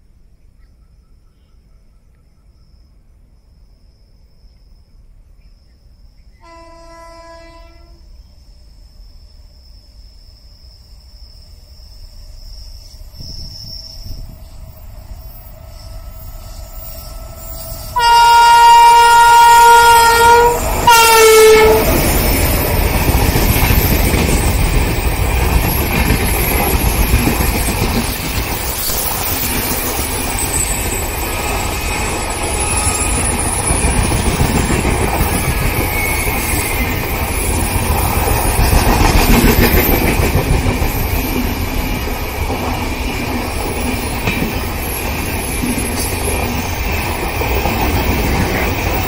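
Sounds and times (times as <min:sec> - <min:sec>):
train rumbling past on track: 0:05.0 - 0:49.0
train horn blasts: 0:06.4 - 0:08.1, 0:15.8 - 0:22.3, 0:32.4 - 0:33.5.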